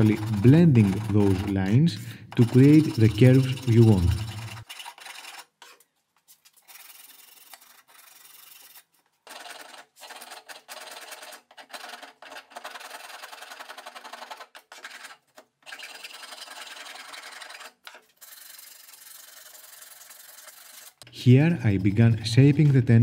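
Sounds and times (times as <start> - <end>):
file scraping wood: 0.0 - 5.8, 6.6 - 23.0.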